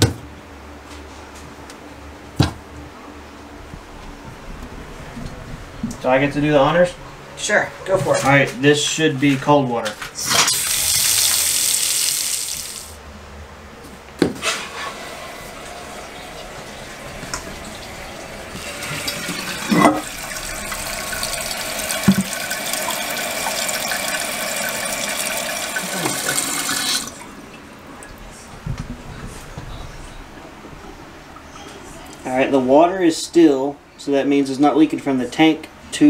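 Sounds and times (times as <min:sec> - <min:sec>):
faucet water rushing into sink: 0:10.3 - 0:13.0, 0:14.8 - 0:27.3
toilet tank filling hiss: 0:10.3 - 0:13.0, 0:14.7 - 0:27.2.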